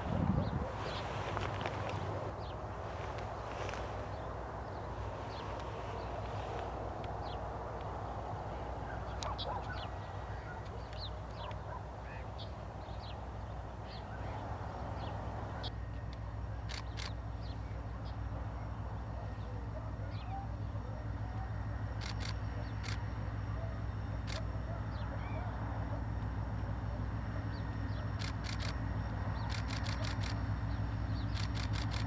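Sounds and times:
diesel locomotive rumble: 0:00.0 - 0:32.0
small birds chirping: 0:00.3 - 0:32.0
sharp clicks: 0:16.0 - 0:17.2, 0:22.0 - 0:23.1, 0:28.2 - 0:28.8, 0:29.4 - 0:30.5, 0:31.2 - 0:32.0.

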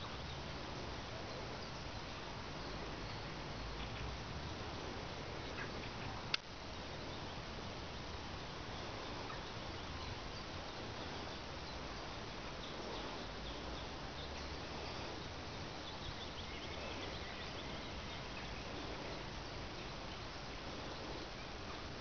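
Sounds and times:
outdoor background noise: 0:00.0 - 0:22.0
faint bird calls: 0:02.6 - 0:06.3, 0:08.4 - 0:22.0.

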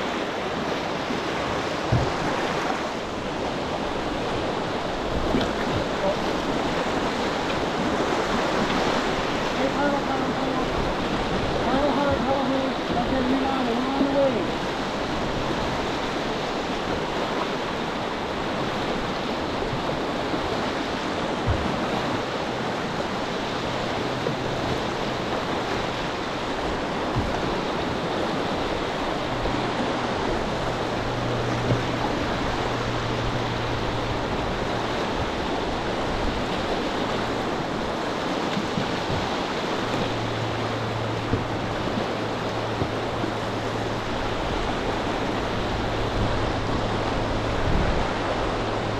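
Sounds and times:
whitewater rushing: 0:00.0 - 0:48.9.

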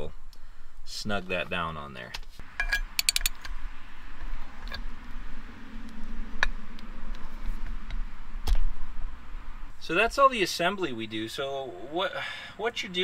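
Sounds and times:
metal lock clicking and clinking: 0:02.6 - 0:03.5.

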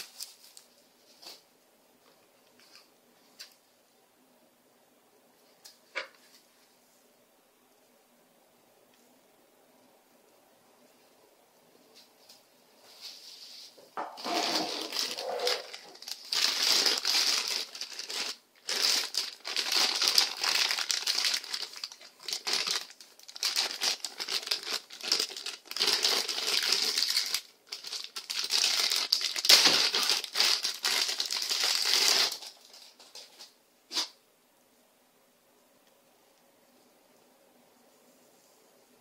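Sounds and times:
plastic bag crinkling: 0:00.0 - 0:01.4, 0:14.2 - 0:33.5.

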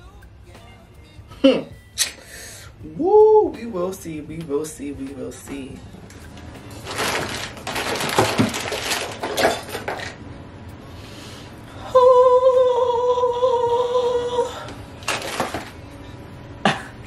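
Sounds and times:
woman humming: 0:01.3 - 0:02.1, 0:11.8 - 0:14.7
plastic items clattering in a bin: 0:06.7 - 0:10.2, 0:15.0 - 0:15.8.

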